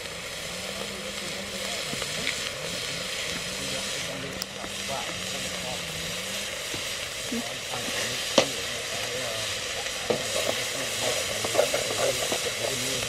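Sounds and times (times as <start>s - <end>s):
insects sizzling in a metal pot: 0.0s - 13.0s
stick stirring with clicks and scrapes: 0.0s - 13.0s.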